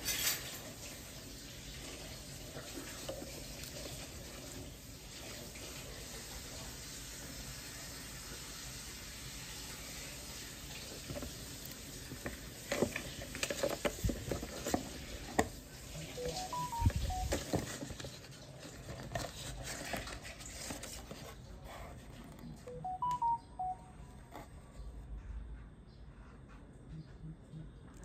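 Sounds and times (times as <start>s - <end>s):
clicks taps and rustles: 11.0s - 15.6s
short electronic chime: 16.2s - 17.3s, 22.7s - 24.0s.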